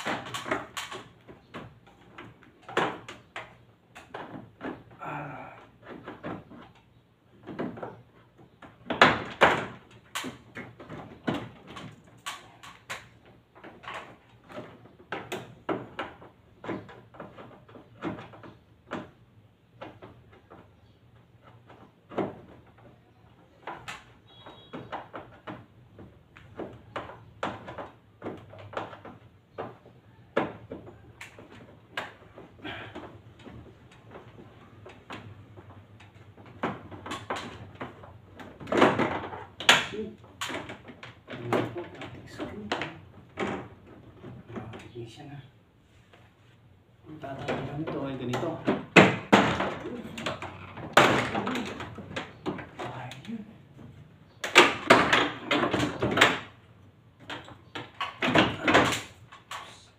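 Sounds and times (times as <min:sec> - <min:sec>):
plastic parts clicking and rattling: 0:00.0 - 0:45.1, 0:47.2 - 0:59.9.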